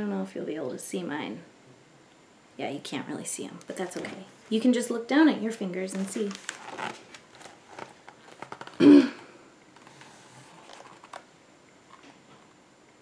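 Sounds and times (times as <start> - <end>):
book handling clicks and rustles: 5.8 - 8.8, 9.7 - 11.3, 11.9 - 12.5.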